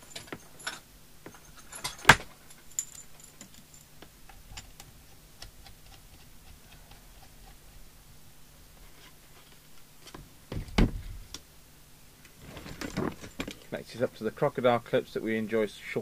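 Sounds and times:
metal clips jangling: 0:00.0 - 0:04.8.

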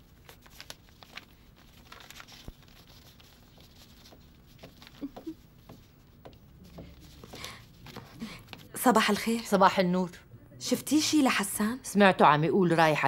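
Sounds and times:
paper rustling and crinkling: 0:00.0 - 0:09.3.

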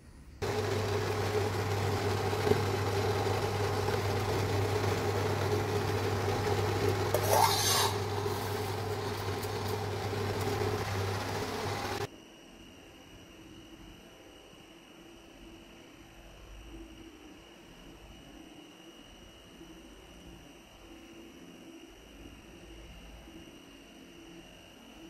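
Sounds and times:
induction cooker humming: 0:00.4 - 0:12.1
metal lid scraping: 0:05.3 - 0:12.0.

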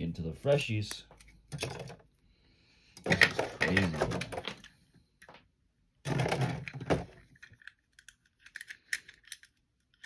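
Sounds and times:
plastic parts clicking: 0:06.1 - 0:10.0.

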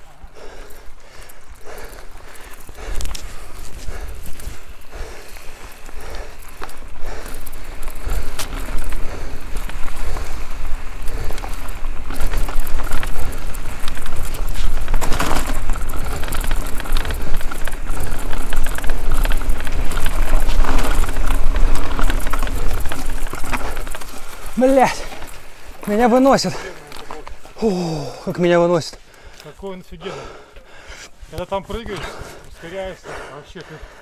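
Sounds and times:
wind buffeting microphone: 0:00.0 - 0:26.6
bike rattling over bumps: 0:00.0 - 0:30.9
tyres on dirt: 0:00.0 - 0:34.0.

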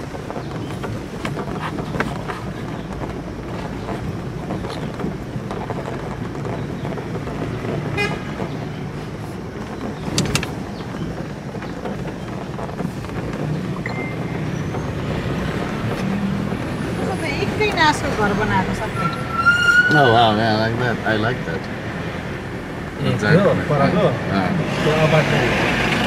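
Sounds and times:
knocks and rattles: 0:00.0 - 0:18.9
car driving on gravel road: 0:00.0 - 0:26.0
vehicle horn toot: 0:07.9 - 0:08.4.

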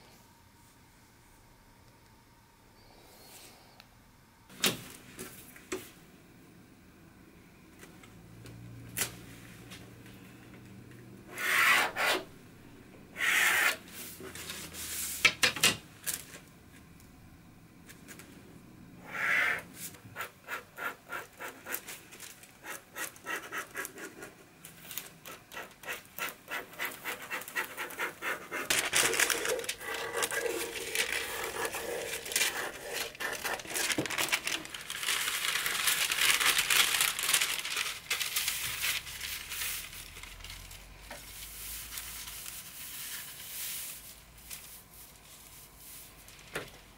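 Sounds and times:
wooden ruler scraping paper: 0:11.3 - 0:12.3, 0:25.2 - 0:34.1
paper rustling and crinkling: 0:21.6 - 0:23.1, 0:23.8 - 0:46.9.

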